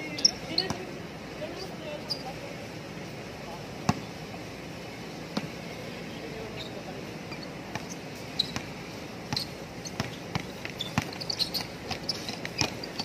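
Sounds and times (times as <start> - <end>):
short high squeaks: 6.5 - 8.7, 9.3 - 13.0
basketball bouncing on hard court: 7.7 - 13.0.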